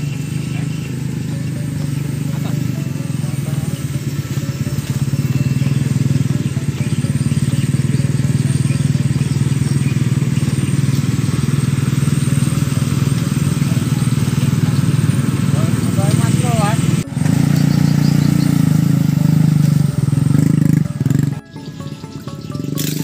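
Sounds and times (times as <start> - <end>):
small motorcycle engine running: 0.0 - 23.0.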